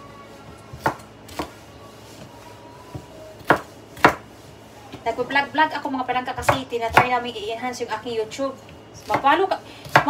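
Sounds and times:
knife chopping on wooden board: 0.7s - 1.6s, 2.9s - 4.2s, 6.4s - 7.1s, 9.0s - 10.0s.

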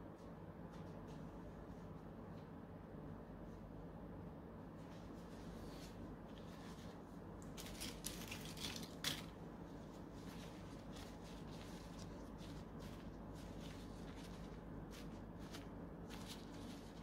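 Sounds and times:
steady low hum: 0.0s - 17.0s
foil wrapper crinkling: 7.4s - 9.4s, 10.1s - 17.0s.

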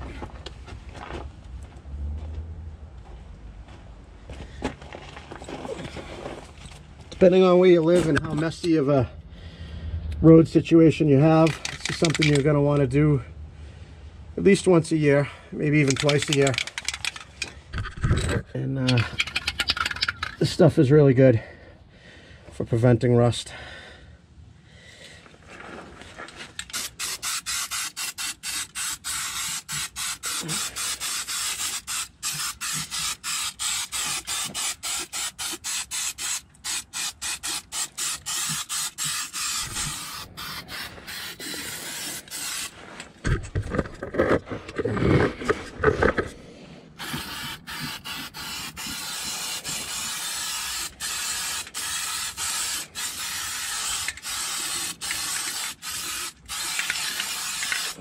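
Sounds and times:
aerosol can spraying: 15.8s - 17.2s, 26.6s - 42.8s, 47.0s - 58.0s.

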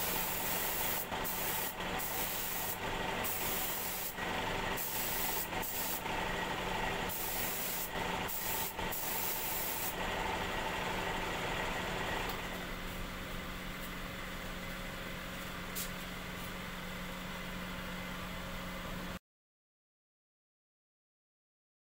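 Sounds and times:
air spray gun hissing: 0.0s - 6.2s, 6.9s - 10.1s
steady machine hum: 0.0s - 19.2s.

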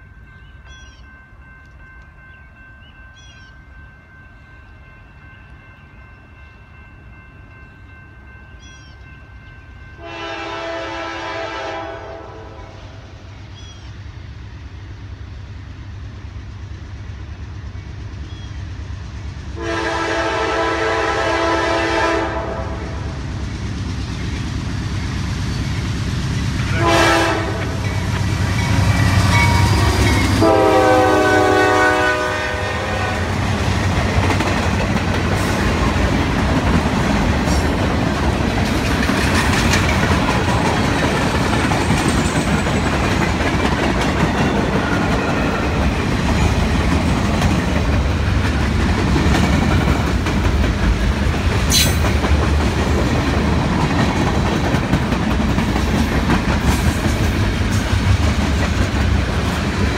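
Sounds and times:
diesel train rumble: 0.0s - 59.9s
train air horn blasts: 10.0s - 13.1s, 19.6s - 23.1s, 26.6s - 28.0s, 28.6s - 33.5s.

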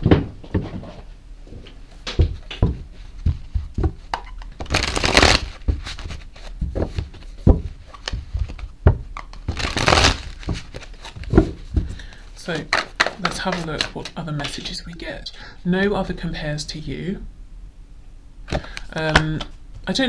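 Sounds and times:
cards tapping and knocking: 2.1s - 14.7s, 18.5s - 19.5s
cards riffle shuffling: 2.4s - 14.8s.

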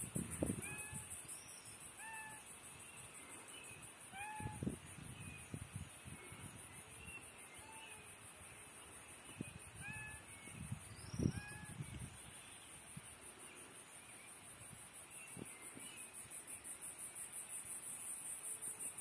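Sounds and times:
short meow-like calls: 0.6s - 1.1s, 2.0s - 2.4s, 4.1s - 4.8s, 7.5s - 8.1s, 9.7s - 10.4s, 11.1s - 11.9s.

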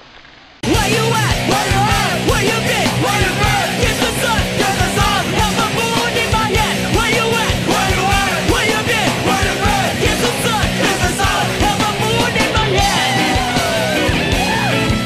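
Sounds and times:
punk rock music: 0.6s - 15.0s.

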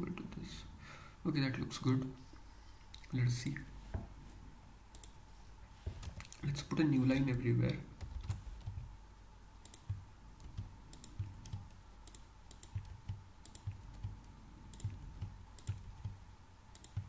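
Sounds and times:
keyboard typing: 7.0s - 8.9s, 9.6s - 17.0s.

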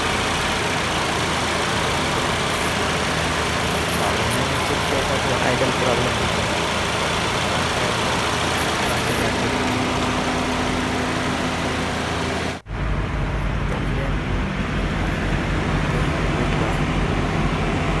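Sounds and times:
car engine idling: 0.0s - 18.0s.

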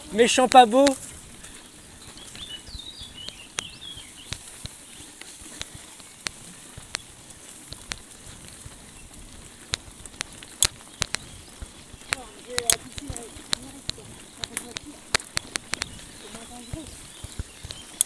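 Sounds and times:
bird chirping: 0.0s - 7.2s, 8.6s - 18.0s
bike tyres hissing on grass: 0.0s - 18.0s
sharp clicks and knocks: 9.6s - 18.0s.

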